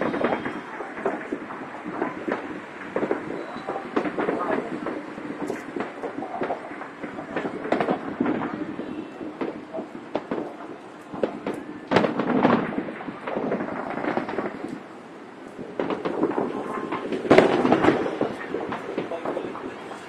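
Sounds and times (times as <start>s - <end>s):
fireworks bangs and crackles: 0.0s - 20.0s.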